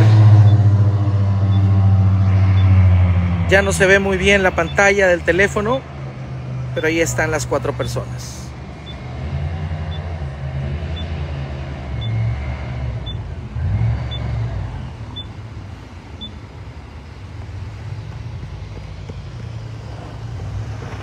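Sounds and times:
airboat engines droning: 0:00.0 - 0:21.0.

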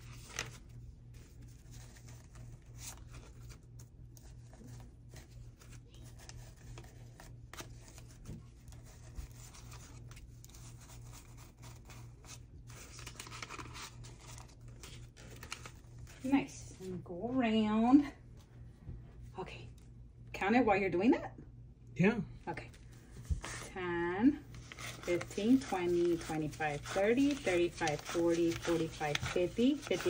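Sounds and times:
paper bills rustling: 0:00.0 - 0:16.4, 0:24.4 - 0:30.0
faint low hum: 0:00.0 - 0:30.0.

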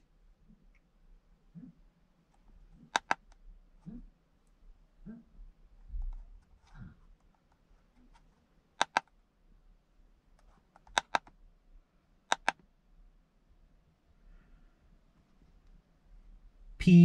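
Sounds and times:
plastic buttons clicking: 0:02.9 - 0:03.2, 0:08.8 - 0:09.1, 0:10.8 - 0:11.4, 0:12.3 - 0:12.6.

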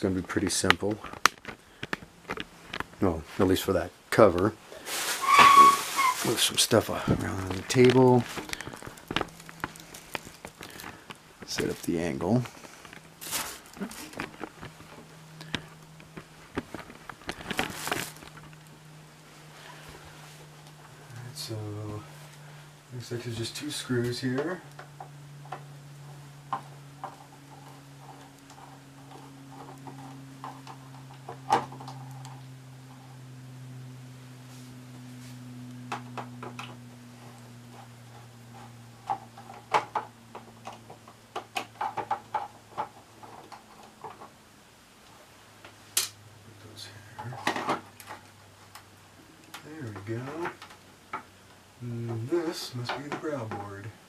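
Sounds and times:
steady low hum: 0:00.0 - 0:54.0
cloth rustling: 0:04.7 - 0:14.9.

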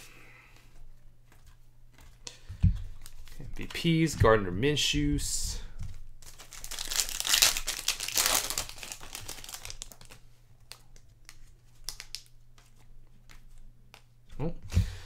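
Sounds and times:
wrapper crinkling: 0:05.9 - 0:12.8.

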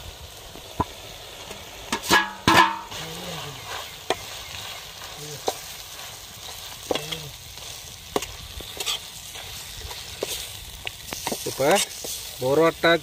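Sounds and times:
food sizzling in a wok: 0:00.0 - 0:13.0
metal utensil knocking on pan: 0:02.0 - 0:02.9.

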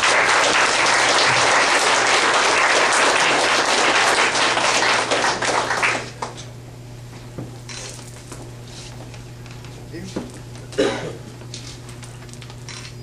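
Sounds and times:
audience clapping: 0:00.0 - 0:06.5.

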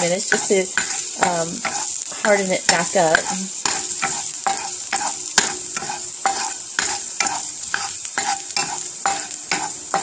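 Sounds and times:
garlic sizzling in hot oil: 0:00.0 - 0:10.0
wooden spatula scraping a pan: 0:00.0 - 0:10.0.

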